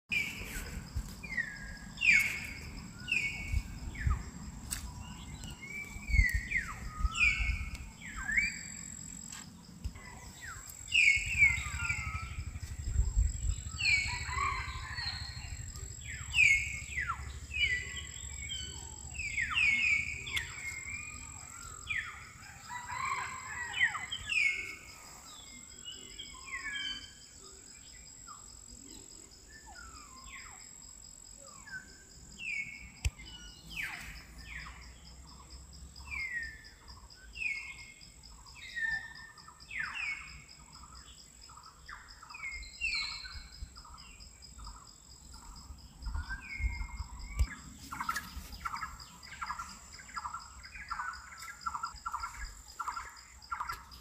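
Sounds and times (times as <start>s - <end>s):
birds whistling downward notes: 10.1s - 12.6s, 13.2s - 24.8s.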